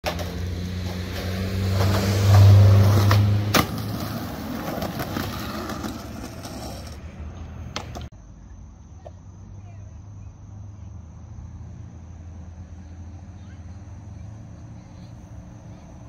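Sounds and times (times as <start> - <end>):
skateboard clack: 0.0 - 8.1
skateboard rolling on concrete: 0.0 - 8.2, 12.7 - 16.0.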